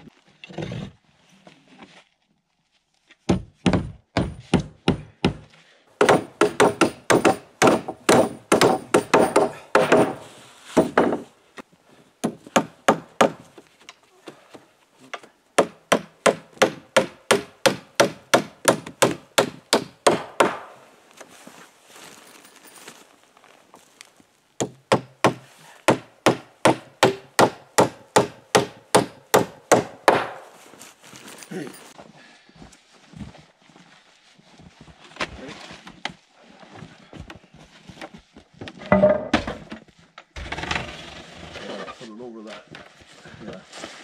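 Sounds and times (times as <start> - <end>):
hammer nailing wooden boards: 3.3 - 11.3, 12.2 - 13.5, 15.6 - 20.8, 24.6 - 30.4.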